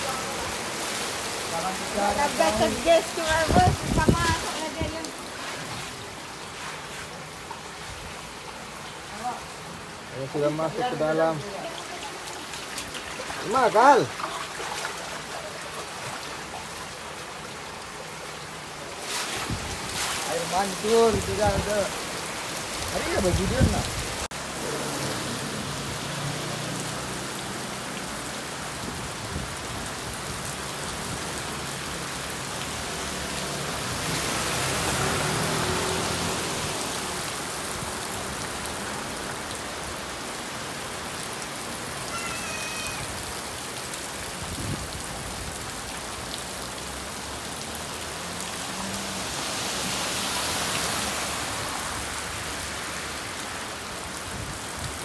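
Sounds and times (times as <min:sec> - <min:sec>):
heavy rain pouring: 0:00.0 - 0:55.0
scooter engine passing through water: 0:32.7 - 0:37.7.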